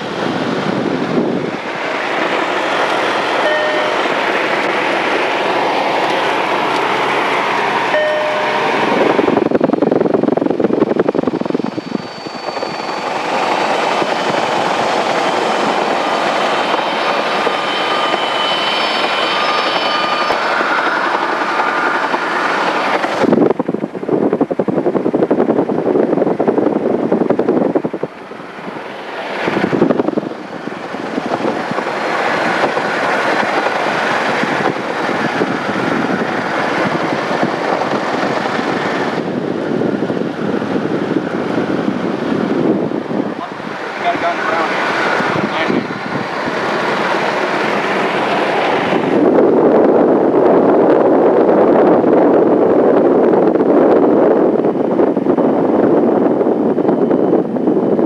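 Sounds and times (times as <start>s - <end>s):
high whining tones: 2.4s - 9.8s, 11.1s - 22.0s.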